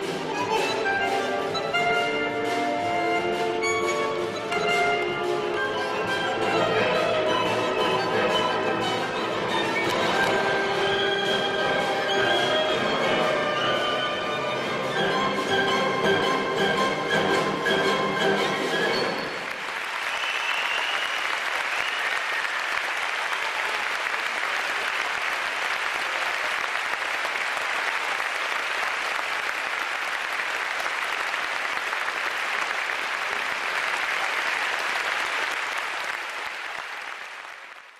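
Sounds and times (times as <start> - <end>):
tango orchestra playing: 0.0 - 19.8
audience applauding: 18.5 - 37.9.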